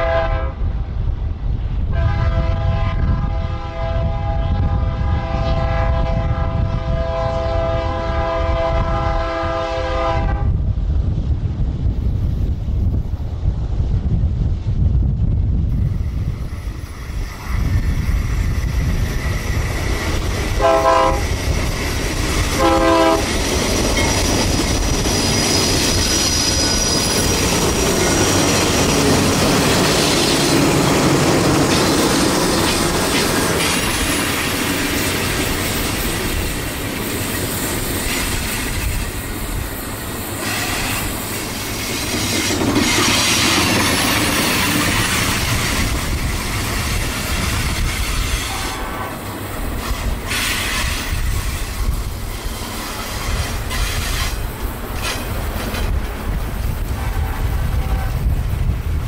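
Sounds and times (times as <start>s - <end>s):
train horn blasts: 0.0s - 0.7s, 1.9s - 10.6s, 20.5s - 21.5s, 22.5s - 23.4s, 48.3s - 49.3s, 57.0s - 58.3s
diesel locomotive passing: 0.0s - 59.0s
freight cars rolling on rails: 15.6s - 59.0s.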